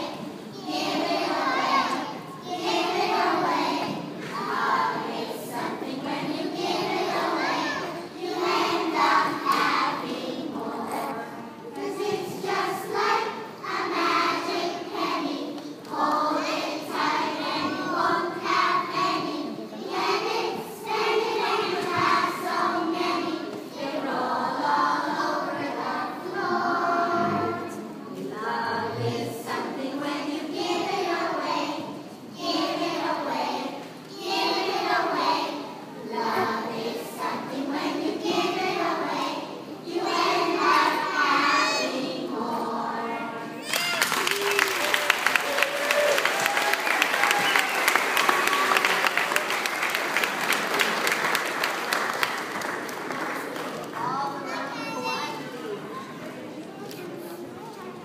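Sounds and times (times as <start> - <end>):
children singing in unison: 0.0 - 43.7.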